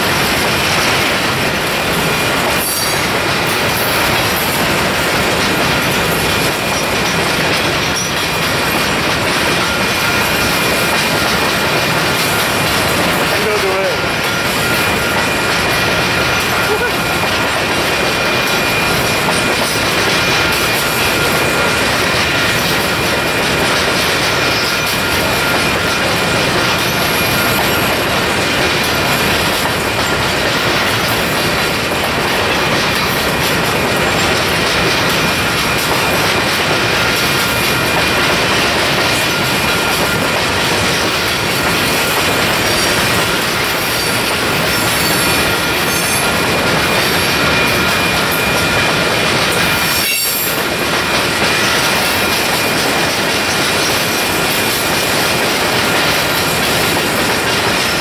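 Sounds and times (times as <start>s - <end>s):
freight train wheels rumbling: 0.0s - 58.0s
wheel squeal: 2.6s - 3.0s, 40.9s - 50.7s.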